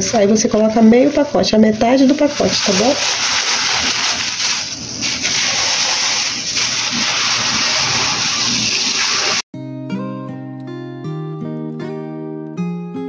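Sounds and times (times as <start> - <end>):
plastic bag rustling and crinkling: 0.0 - 9.4.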